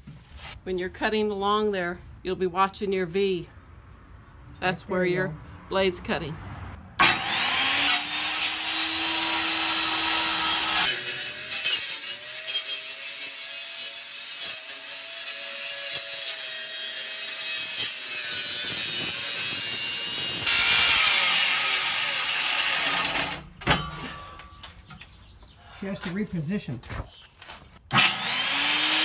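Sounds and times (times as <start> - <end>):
circular saw cutting metal: 7.0 - 23.5, 27.9 - 29.0.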